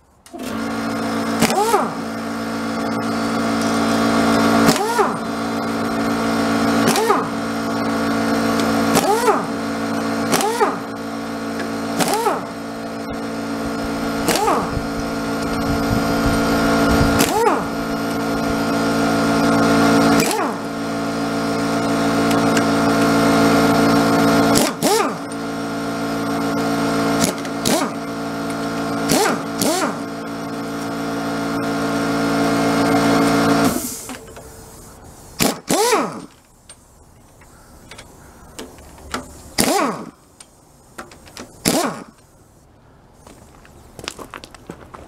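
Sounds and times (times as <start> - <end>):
motor humming: 0.3 - 40.4.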